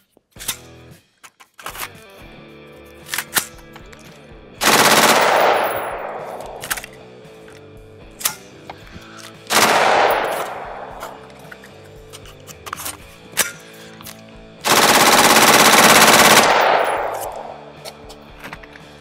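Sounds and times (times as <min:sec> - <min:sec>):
automatic gunfire bursts: 0:04.6 - 0:06.8, 0:09.5 - 0:11.4, 0:14.6 - 0:17.7
sharp clicks: 0:04.6 - 0:07.0, 0:14.7 - 0:17.7.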